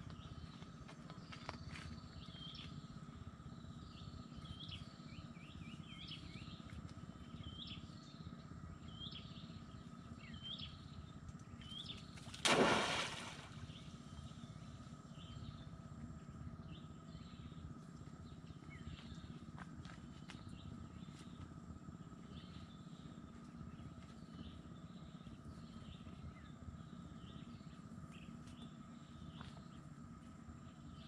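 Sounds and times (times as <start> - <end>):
outdoor background noise: 0.0 - 31.0
trap splashing into water: 12.2 - 13.8.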